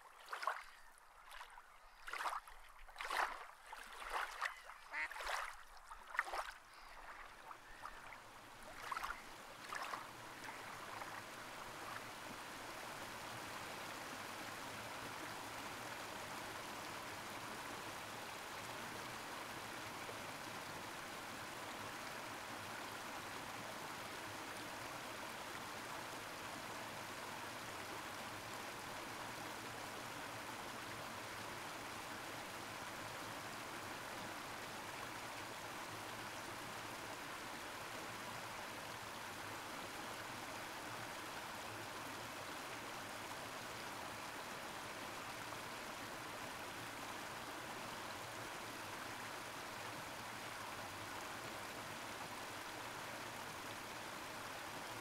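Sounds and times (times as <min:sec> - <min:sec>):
water splashing and lapping: 0:00.0 - 0:12.2
running water rushing: 0:00.0 - 0:55.0.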